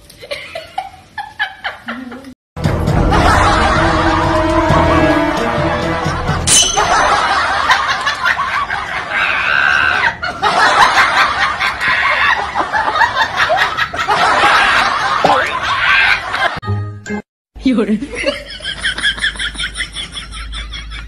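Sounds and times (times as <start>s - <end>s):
laughter: 0.2s - 2.4s, 3.1s - 4.6s, 6.8s - 16.6s, 18.0s - 21.0s
brief music: 2.6s - 7.4s.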